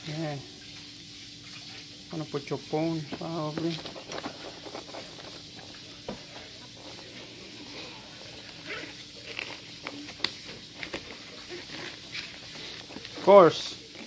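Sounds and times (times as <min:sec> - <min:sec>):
case rustling: 0:03.1 - 0:07.4, 0:08.0 - 0:14.0.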